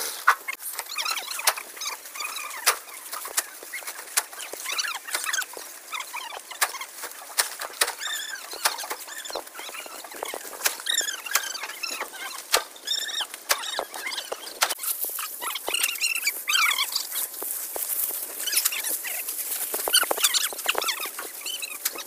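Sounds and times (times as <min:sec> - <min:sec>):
dry stalks cracking and rustling: 0:00.0 - 0:22.0
short high chirping calls: 0:08.0 - 0:17.2.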